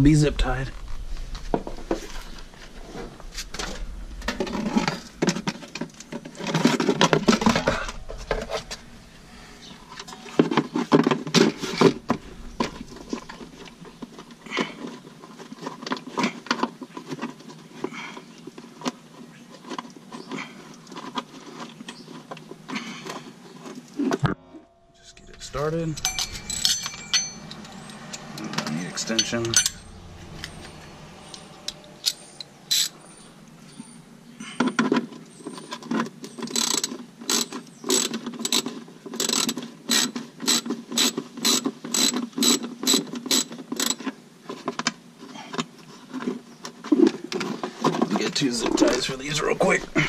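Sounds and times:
hand tools clicking and scraping: 25.1 - 33.1, 34.4 - 44.1.

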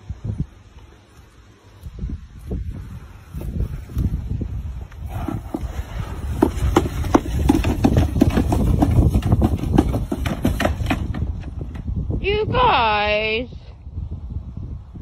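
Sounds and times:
wind rumble on microphone: 0.0 - 15.0
plastic sled scraping and knocking: 4.8 - 11.9.

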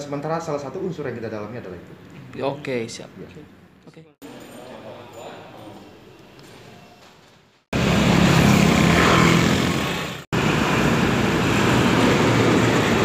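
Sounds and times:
road traffic passing: 7.7 - 13.0.

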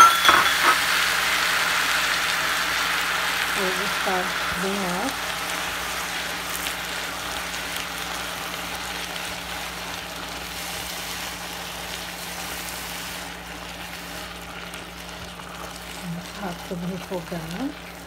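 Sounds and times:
vegetables sizzling in a pan: 0.0 - 18.0.

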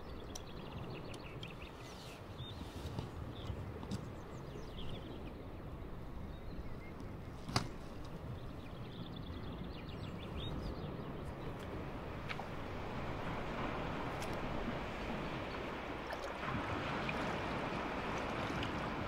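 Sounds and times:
small birds chirping: 0.0 - 11.8
low rumble of wind: 0.0 - 19.0.

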